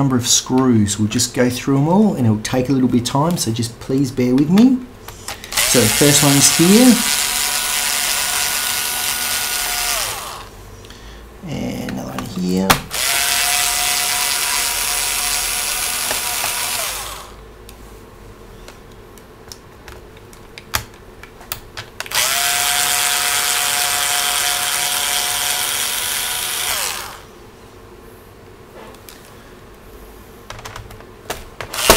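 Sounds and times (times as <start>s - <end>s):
electric screwdriver motor whine: 5.3s - 10.5s, 12.9s - 17.4s, 22.1s - 27.3s.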